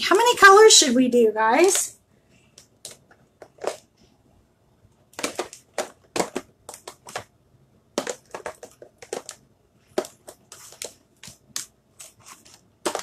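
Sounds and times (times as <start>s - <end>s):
plastic tools rattling and clicking: 2.5s - 3.9s, 5.1s - 7.3s, 8.0s - 13.0s.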